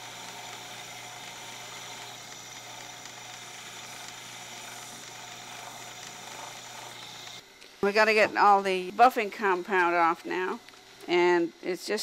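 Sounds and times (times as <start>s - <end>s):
polishing lathe humming: 0.0s - 11.8s.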